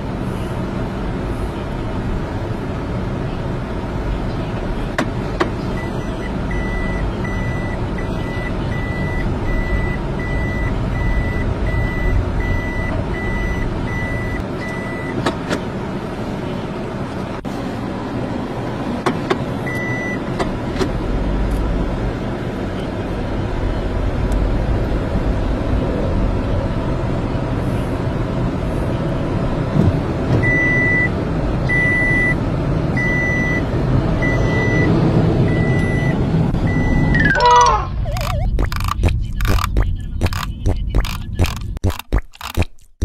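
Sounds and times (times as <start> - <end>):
car engine and road noise: 0.0 - 43.0
short electronic beeps: 5.7 - 15.2, 19.7 - 20.2, 33.0 - 33.6, 34.2 - 34.9, 35.5 - 41.6.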